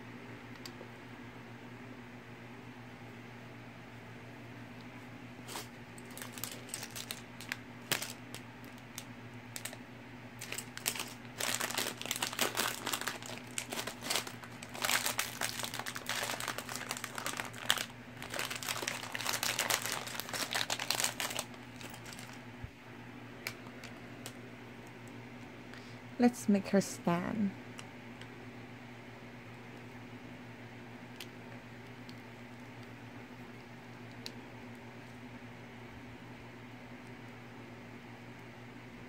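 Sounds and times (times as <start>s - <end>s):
plastic bag crinkling: 5.4s - 9.8s, 10.4s - 22.4s.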